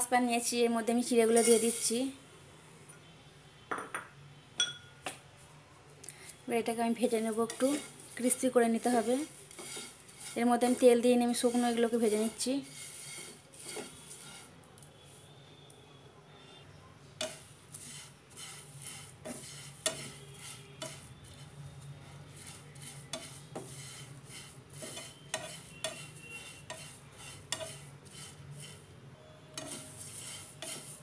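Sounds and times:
spatula stirring rice flakes in pan: 1.0s - 2.1s, 6.8s - 15.7s, 17.2s - 31.0s.

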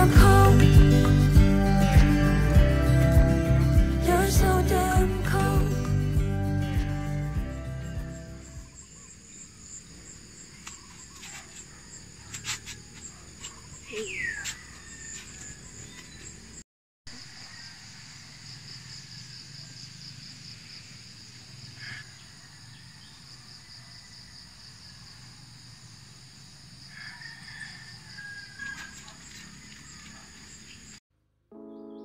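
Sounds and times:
crickets trilling: 7.8s - 31.0s
short bird chirps: 13.4s - 16.4s.

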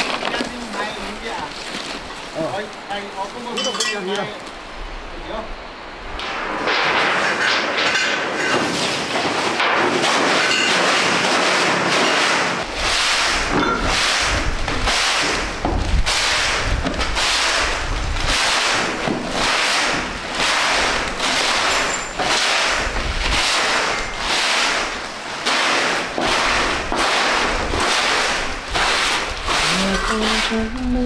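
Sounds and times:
broom sweeping concrete floor: 8.5s - 30.8s.

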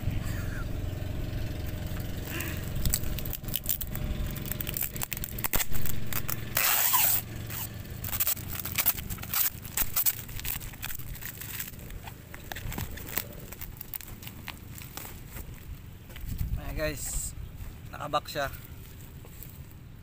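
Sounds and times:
plastic packaging crinkling: 2.8s - 15.4s.

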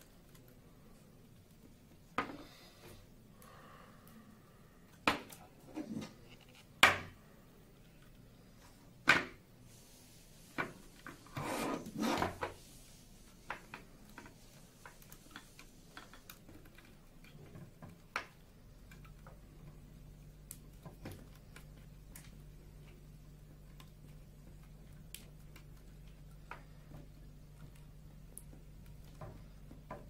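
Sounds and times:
low steady hum: 0.0s - 30.0s
plastic tray scraping on wood: 11.1s - 12.6s.

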